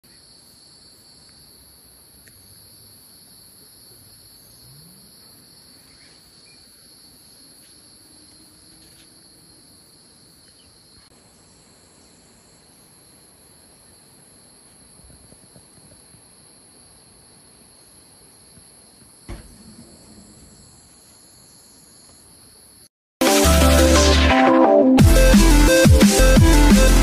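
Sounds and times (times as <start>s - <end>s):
insects chorus pulsing: 0.1s - 22.9s.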